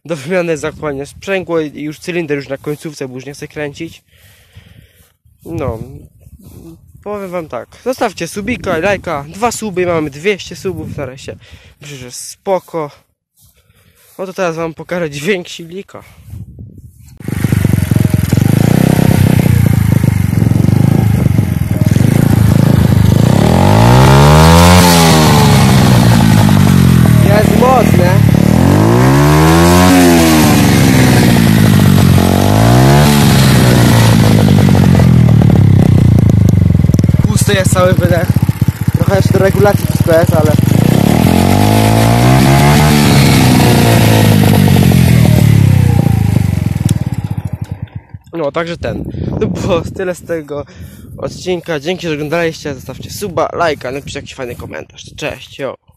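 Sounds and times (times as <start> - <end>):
moped engine revving: 17.2 - 48.8.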